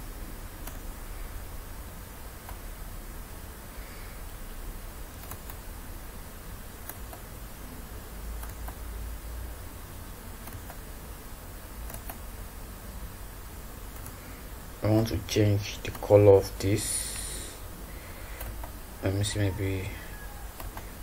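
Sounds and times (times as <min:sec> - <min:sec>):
microphone hum and hiss: 0:00.0 - 0:21.0
mouse clicks: 0:20.6 - 0:20.9.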